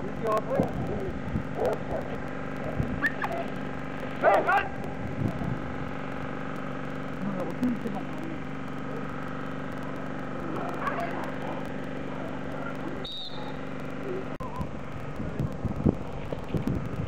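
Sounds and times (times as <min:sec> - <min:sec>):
wind buffeting microphone: 0:00.0 - 0:03.4, 0:04.6 - 0:06.0, 0:14.6 - 0:17.0
steady mechanical hum: 0:00.0 - 0:17.0.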